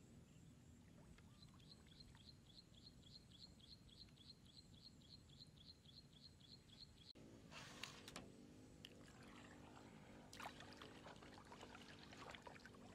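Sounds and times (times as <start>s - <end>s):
faint bird chirping: 0.2s - 7.2s.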